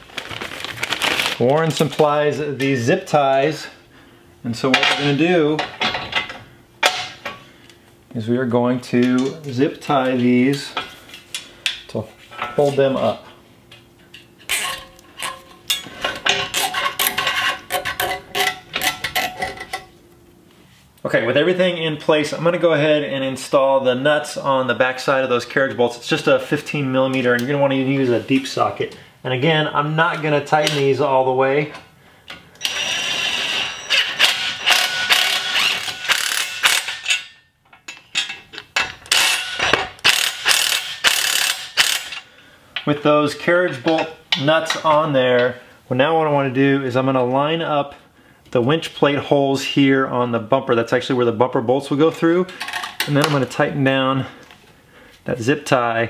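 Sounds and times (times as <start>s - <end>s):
ratchet clicking rapidly: 33.9s - 37.1s, 40.0s - 42.2s.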